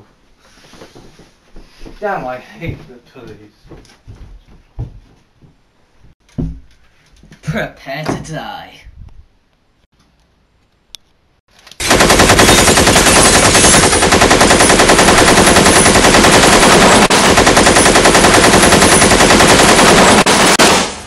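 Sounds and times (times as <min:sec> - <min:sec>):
minigun rapid fire: 0:11.8 - 0:21.0.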